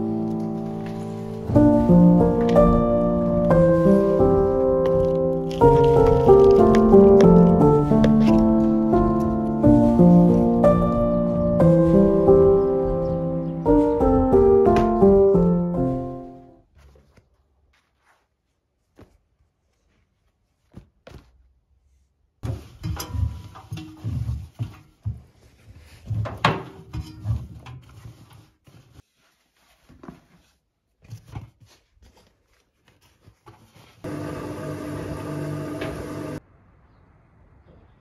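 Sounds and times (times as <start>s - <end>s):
fabric rustling: 0.0s - 26.5s, 27.1s - 34.1s
washing machine humming: 34.0s - 36.4s.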